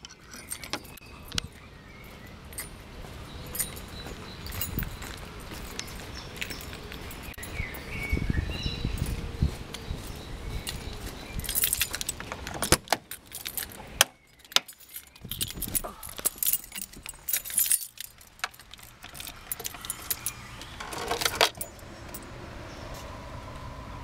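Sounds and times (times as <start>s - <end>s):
car keys jangling: 0.0s - 1.6s, 2.5s - 7.7s, 10.6s - 22.2s.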